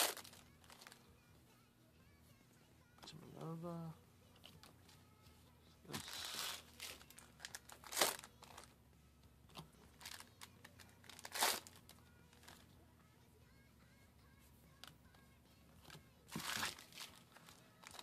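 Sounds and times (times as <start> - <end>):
foil wrappers crinkling: 5.9 - 8.7, 9.8 - 12.6, 16.3 - 18.0
cards being handled: 9.5 - 12.6.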